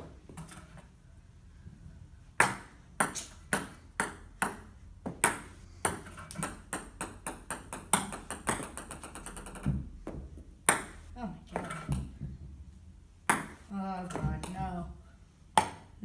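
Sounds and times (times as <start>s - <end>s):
ping-pong balls bouncing on table: 2.4s - 12.3s, 13.2s - 14.9s, 15.5s - 15.9s.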